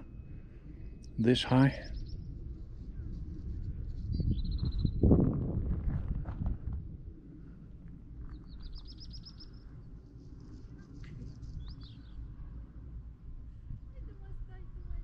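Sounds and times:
low steady rumble: 0.0s - 15.0s
bird chirps: 0.8s - 2.3s, 8.3s - 12.2s.

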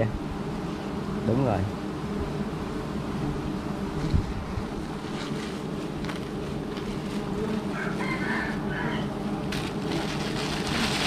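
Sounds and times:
rooster crowing: 7.6s - 9.3s
plastic bag crinkling: 9.5s - 11.0s.

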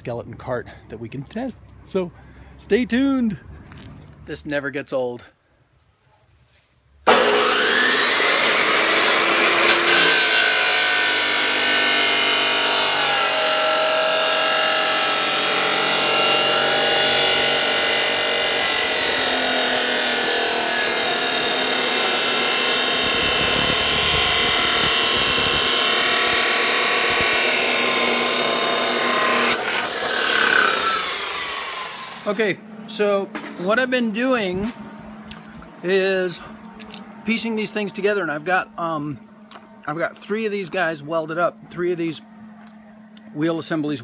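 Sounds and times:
chop saw grinding through steel: 7.1s - 32.3s.

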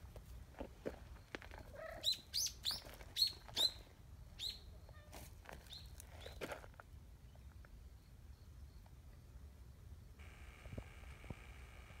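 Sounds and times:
bird chirping: 1.2s - 5.0s.

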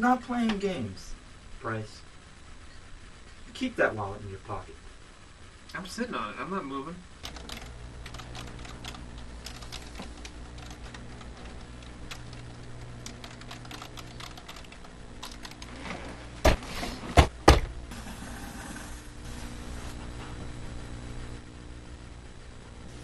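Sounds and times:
typing on computer keyboard: 7.2s - 15.7s
loud knocks: 16.4s - 17.8s.

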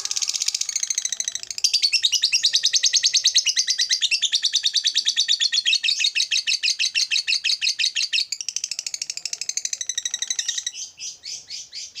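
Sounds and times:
bird chattering trill: 0.0s - 4.9s.

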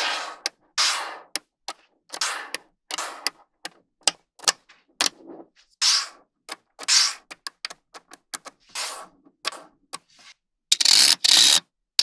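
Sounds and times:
magnetic balls clicking together: 0.0s - 5.2s, 6.5s - 8.6s
magnetic balls rattling scrapes: 2.1s - 3.5s.

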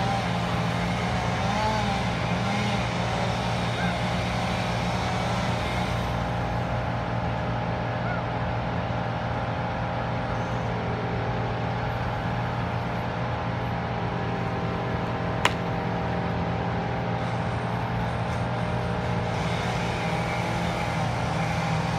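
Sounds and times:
engine running steadily: 0.0s - 21.9s
sharp crack: 15.4s - 15.8s.

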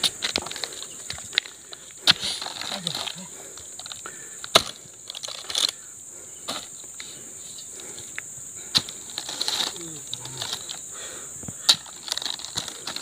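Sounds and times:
insects droning: 0.0s - 13.0s
sharp thuds of fruit bunches: 4.5s - 4.8s.

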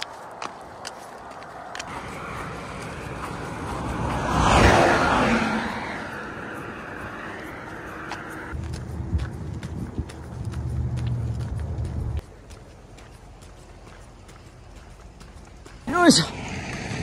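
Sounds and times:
large truck passing: 1.7s - 12.2s, 16.1s - 17.0s.

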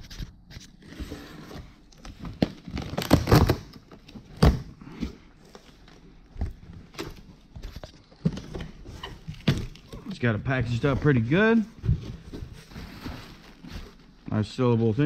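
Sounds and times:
cardboard flaps crinkling and scraping: 0.0s - 15.0s
packing tape tearing: 2.4s - 4.6s.

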